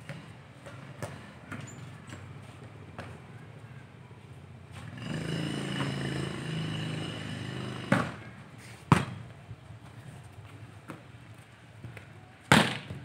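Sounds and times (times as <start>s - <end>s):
football being kicked: 8.9s - 9.2s, 12.5s - 13.0s.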